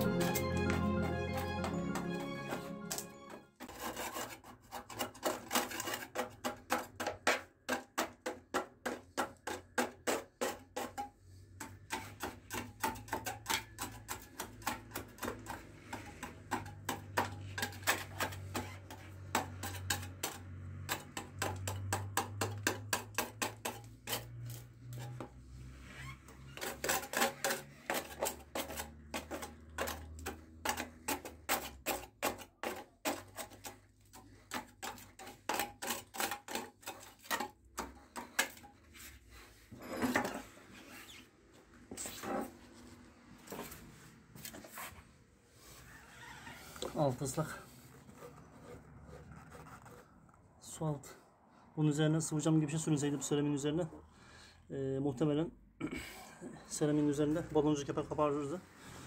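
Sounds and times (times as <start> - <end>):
hand tool chipping mortar: 3.6 - 25.3, 26.5 - 38.8.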